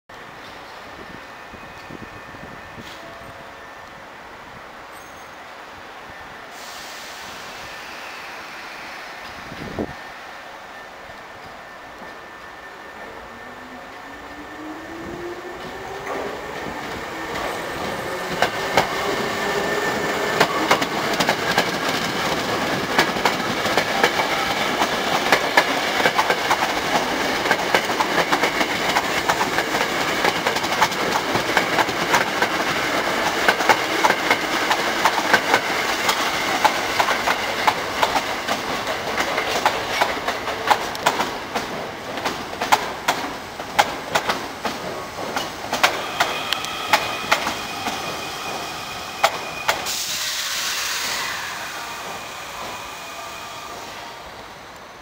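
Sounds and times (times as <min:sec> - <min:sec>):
train arriving on next track: 0:00.1 - 0:55.0
train wheels clattering over rail joints: 0:20.3 - 0:48.6.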